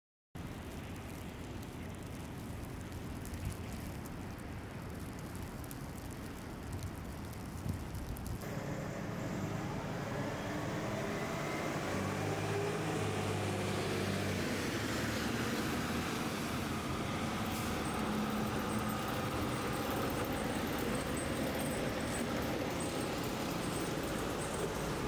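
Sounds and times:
tyres hissing on wet road: 0:00.4 - 0:25.0
fire truck engine drone: 0:08.4 - 0:25.0.

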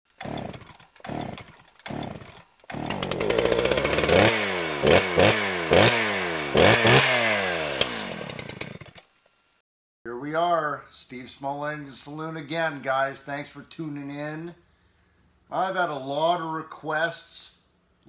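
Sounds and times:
small engine revving: 0:00.1 - 0:09.6.

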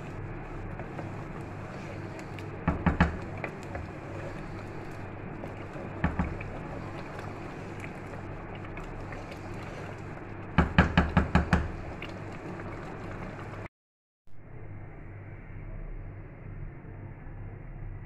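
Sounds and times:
curry boiling and bubbling: 0:00.0 - 0:13.7
spatula knocking on steel pot: 0:10.6 - 0:11.7.

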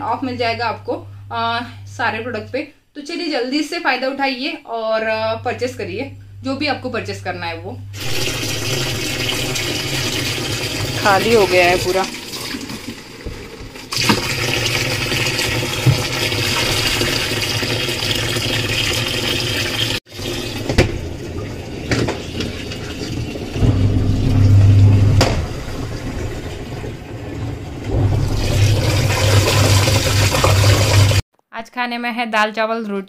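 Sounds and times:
low steady hum: 0:00.0 - 0:13.2, 0:20.2 - 0:31.2
water rushing into washing machine: 0:08.0 - 0:31.2.

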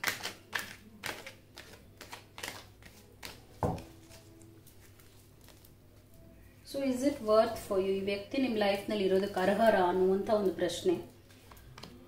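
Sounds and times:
cards being shuffled: 0:00.0 - 0:05.8.

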